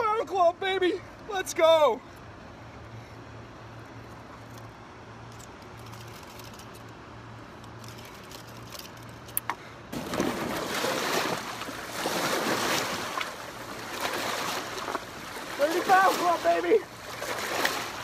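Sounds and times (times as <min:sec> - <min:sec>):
waves breaking over rocks: 0:09.9 - 0:18.0.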